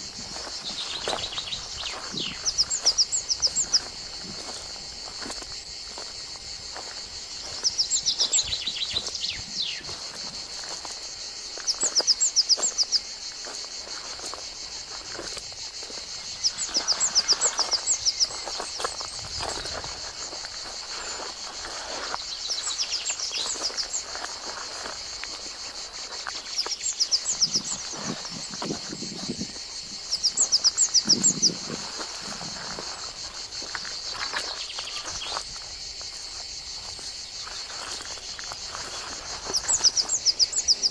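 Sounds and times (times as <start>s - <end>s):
insects droning: 0.0s - 40.9s.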